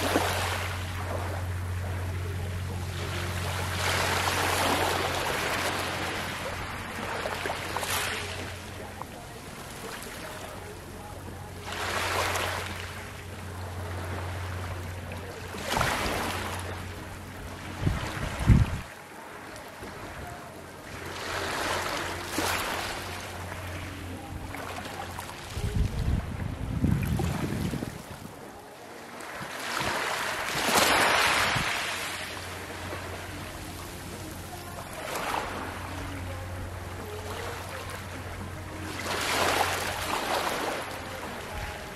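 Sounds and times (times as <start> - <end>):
steady low hum: 0.0 - 41.9
small waves lapping on pebbles: 20.9 - 23.4, 29.1 - 36.2, 38.8 - 41.9.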